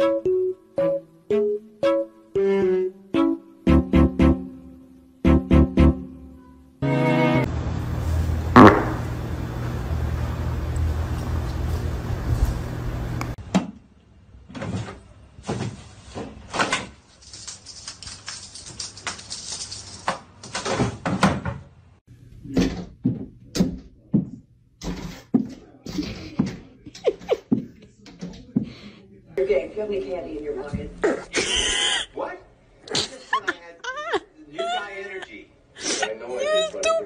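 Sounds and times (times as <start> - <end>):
steady noise: 7.6 - 9.9.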